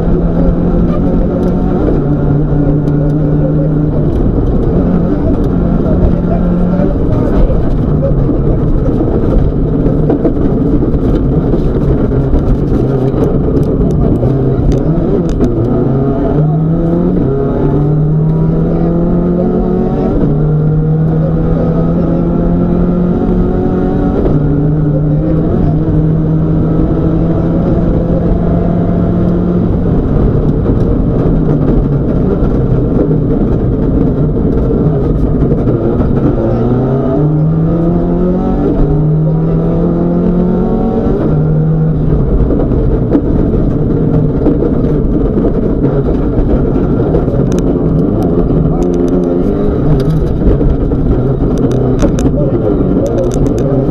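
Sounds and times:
rally car engine revving: 0:00.0 - 0:53.9
road and tyre noise: 0:00.0 - 0:53.9.

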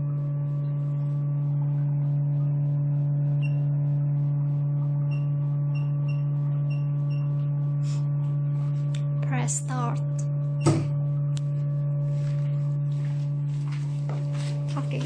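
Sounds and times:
laser machine humming: 0:09.2 - 0:12.0.

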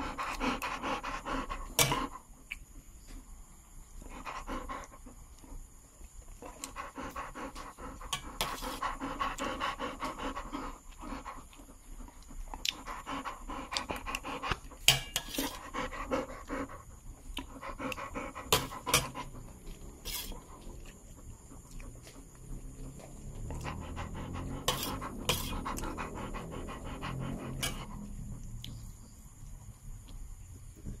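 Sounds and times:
dog panting: 0:00.0 - 0:02.5, 0:03.8 - 0:30.0.

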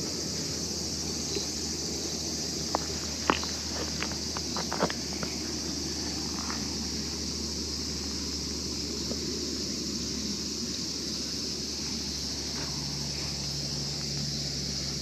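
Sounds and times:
high hiss: 0:00.0 - 0:15.0
low hum: 0:00.0 - 0:15.0.

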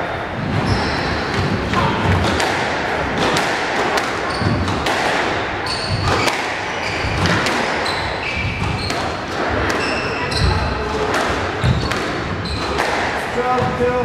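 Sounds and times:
shoes squeaking on wooden floor: 0:00.5 - 0:02.3, 0:04.1 - 0:04.9, 0:05.6 - 0:13.0
squash ball cracking off rackets: 0:01.3 - 0:13.3.

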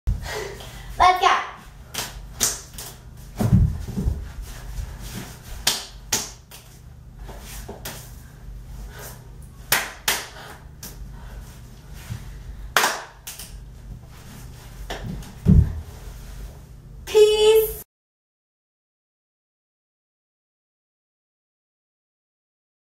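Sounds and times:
hand claps and slaps: 0:01.9 - 0:03.0, 0:05.6 - 0:08.1, 0:09.7 - 0:11.0, 0:12.8 - 0:13.6.

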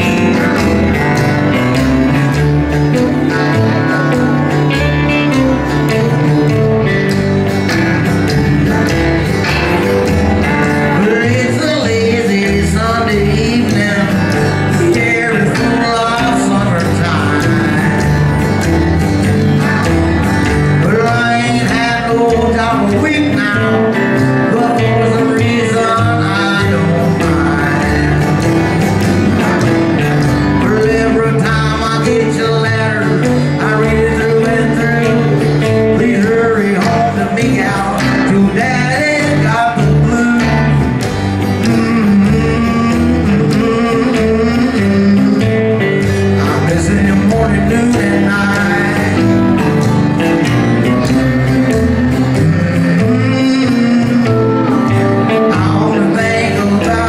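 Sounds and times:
bass line: 0:00.0 - 0:57.0
guitar: 0:00.0 - 0:57.0
live country band: 0:00.0 - 0:57.0.

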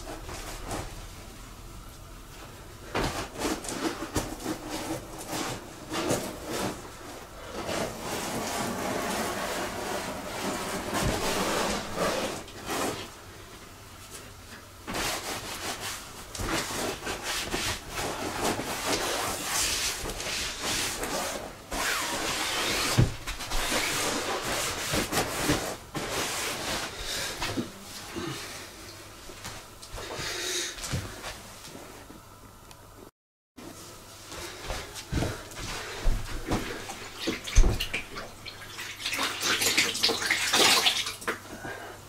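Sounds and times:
sponge scrubbing rubber tube: 0:07.5 - 0:13.1.

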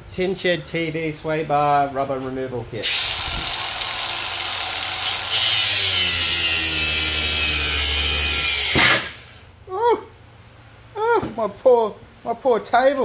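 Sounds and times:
angle grinder grinding rubber: 0:02.8 - 0:09.4.

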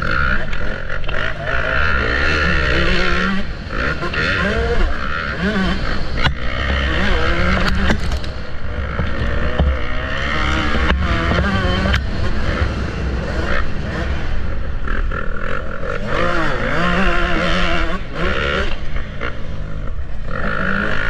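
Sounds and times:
motorbike engines revving: 0:00.0 - 0:21.0.

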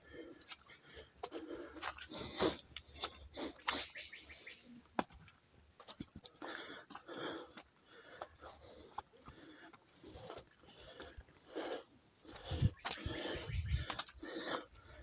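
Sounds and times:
footsteps on rocky trail: 0:00.0 - 0:15.0
bird whistle: 0:03.6 - 0:04.8.

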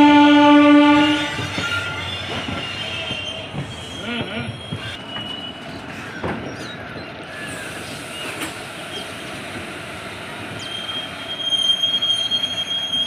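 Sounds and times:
train wheels rumbling on rails: 0:00.0 - 0:13.0
high wheel squeal: 0:01.4 - 0:05.8, 0:10.5 - 0:13.0.

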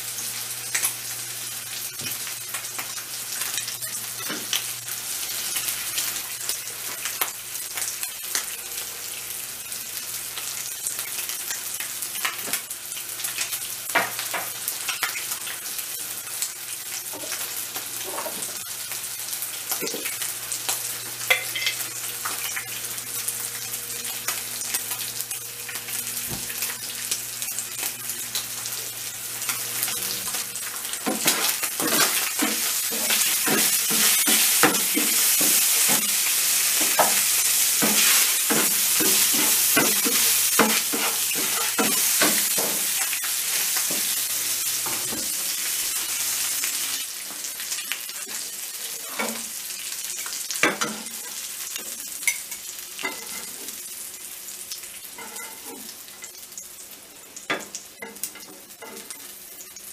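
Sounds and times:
beef sizzling in a frying pan: 0:00.0 - 0:59.9
metal tongs scraping a pan: 0:52.2 - 0:53.7, 0:55.2 - 0:55.9.

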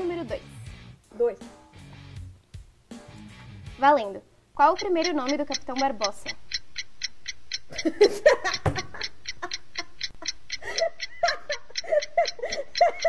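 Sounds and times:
countdown timer ticking: 0:02.9 - 0:13.0
woman laughing: 0:07.7 - 0:13.0.

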